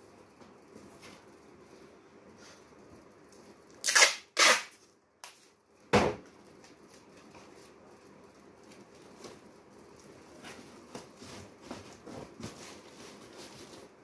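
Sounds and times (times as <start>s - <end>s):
rustling scrapes: 7.3s - 14.0s.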